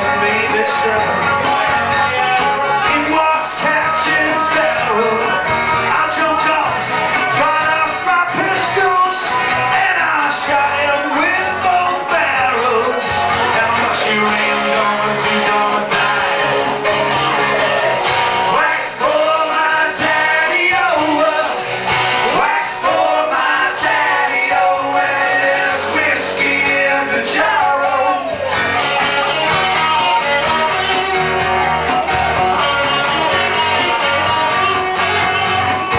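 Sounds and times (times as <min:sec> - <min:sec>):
lead electric guitar: 0:00.0 - 0:35.9
person singing: 0:00.0 - 0:35.9
rock band playing: 0:00.0 - 0:35.9.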